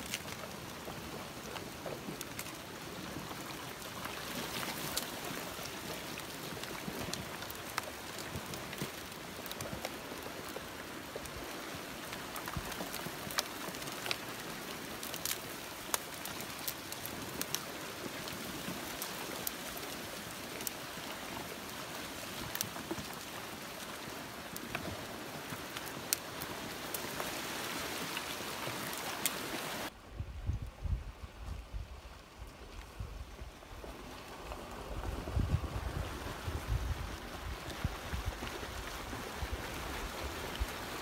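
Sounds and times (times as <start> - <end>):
branches crackling and snapping: 0.0 - 29.9
steady hiss of flood water: 0.0 - 41.0.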